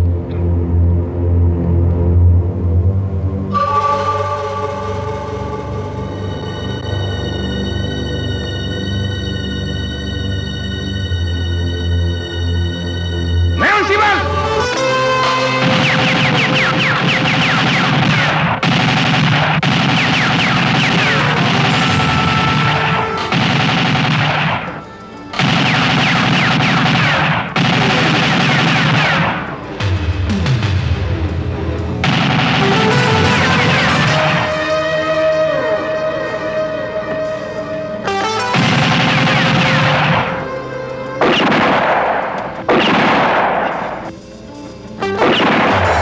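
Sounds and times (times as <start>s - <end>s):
film score music: 0.0s - 46.0s
bullets ricocheting: 15.5s - 29.6s, 38.4s - 40.5s, 41.2s - 44.1s, 45.0s - 46.0s
automatic gunfire: 15.6s - 29.6s, 32.0s - 34.6s, 38.5s - 40.5s, 41.2s - 44.1s, 45.0s - 46.0s.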